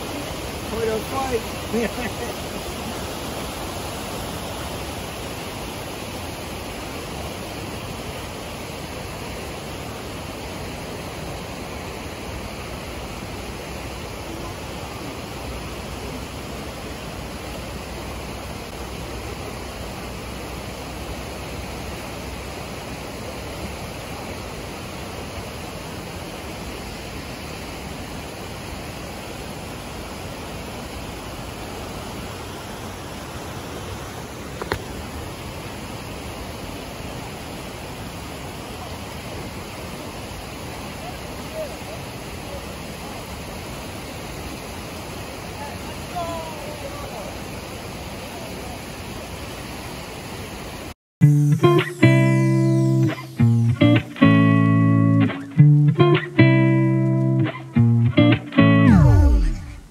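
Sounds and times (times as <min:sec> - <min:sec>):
creek rushing over rocks: 0:00.0 - 0:50.9.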